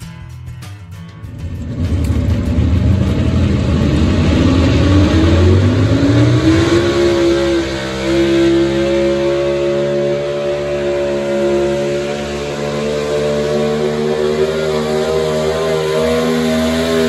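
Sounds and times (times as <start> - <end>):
background music: 0.0 - 5.6
truck engine revving loud: 1.2 - 17.0.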